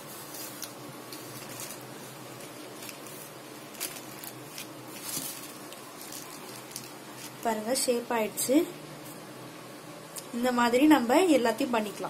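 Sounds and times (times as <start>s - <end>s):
plastic sheet crinkling: 0.0s - 7.9s.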